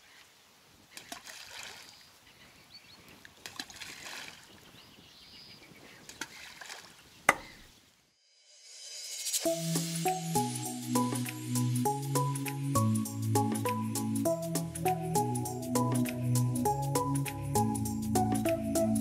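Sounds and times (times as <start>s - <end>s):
light clicks of water and tackle: 0.2s - 2.0s, 3.0s - 4.5s, 6.0s - 7.6s
fish splashing at water surface: 1.0s - 1.9s, 3.4s - 4.5s, 6.1s - 7.0s.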